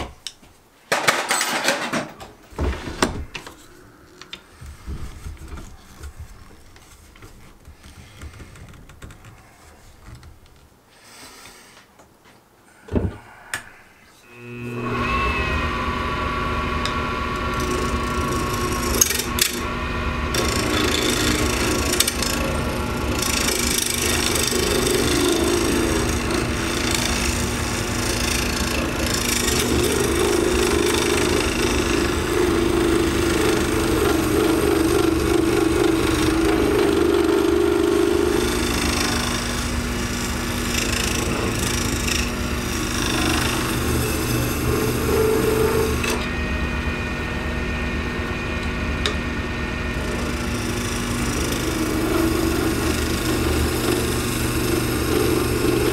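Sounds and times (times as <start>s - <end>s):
turning tool scraping: 13.6s - 46.6s, 48.2s - 55.9s
lathe motor hum: 14.2s - 55.9s.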